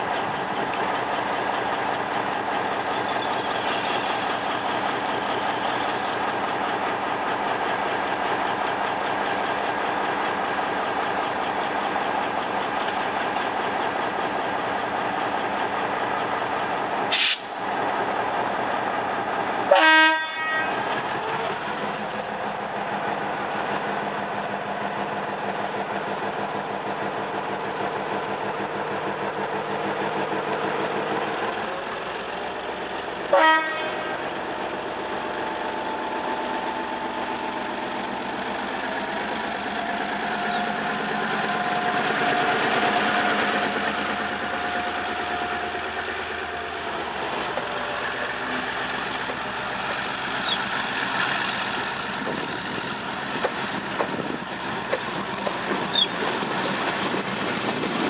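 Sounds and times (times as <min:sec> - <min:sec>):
locomotive engine drone: 0:00.0 - 0:58.0
train horn blast: 0:19.7 - 0:20.9, 0:33.3 - 0:34.3.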